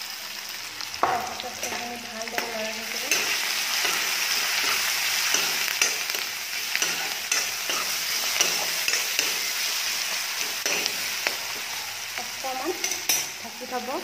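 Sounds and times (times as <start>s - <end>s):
potatoes sizzling in hot oil: 0.0s - 14.0s
metal spatula scraping pan: 1.5s - 11.7s.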